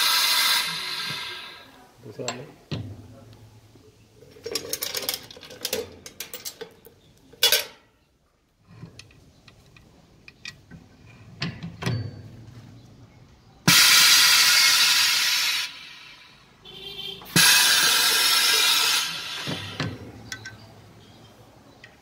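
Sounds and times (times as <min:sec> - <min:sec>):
compressed air hiss: 0:00.0 - 0:01.8, 0:13.7 - 0:16.7, 0:17.3 - 0:20.0.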